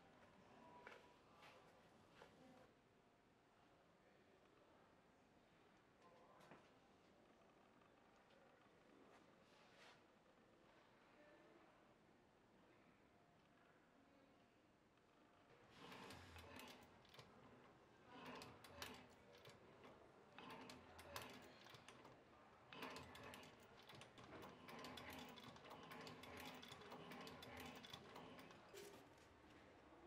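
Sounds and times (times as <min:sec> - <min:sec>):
sewing machine needle clicking: 0:15.8 - 0:29.0.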